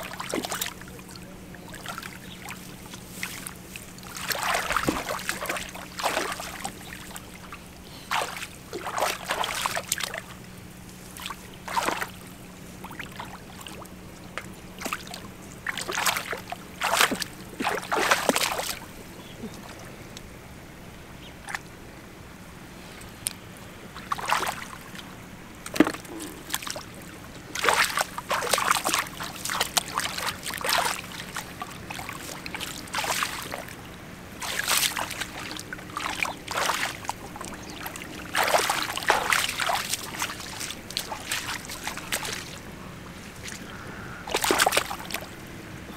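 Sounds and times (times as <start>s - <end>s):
hands splashing in muddy water: 1.8s - 10.4s, 11.0s - 12.2s, 14.8s - 18.9s, 24.0s - 25.0s, 25.6s - 33.8s, 34.4s - 43.7s, 44.3s - 45.3s.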